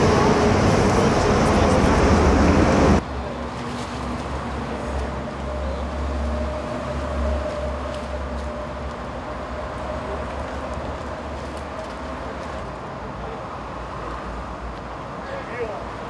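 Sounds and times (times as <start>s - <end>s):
machinery hum and rumble: 0.0s - 3.4s.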